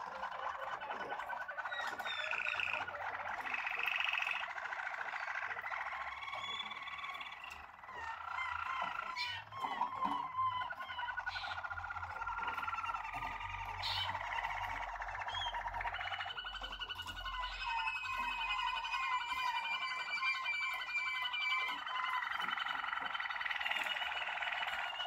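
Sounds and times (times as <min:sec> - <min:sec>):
canary trilling song: 0:00.0 - 0:25.0.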